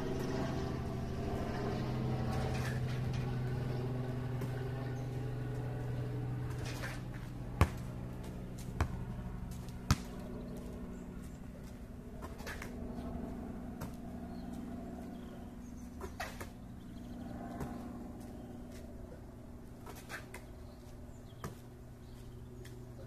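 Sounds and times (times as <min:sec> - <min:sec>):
steady low hum: 0:00.0 - 0:23.0
basketball thumping on asphalt: 0:04.4 - 0:04.6, 0:06.5 - 0:10.8, 0:11.6 - 0:12.8, 0:13.8 - 0:14.6, 0:16.0 - 0:16.6, 0:17.5 - 0:18.3, 0:21.4 - 0:21.7.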